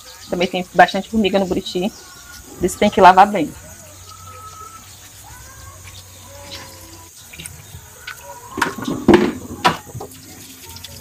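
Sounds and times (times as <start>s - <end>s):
sponge scrubbing fruit: 0.0s - 11.0s
tap water running into sink: 7.4s - 11.0s
wet fruits knocking in sink: 8.5s - 10.2s.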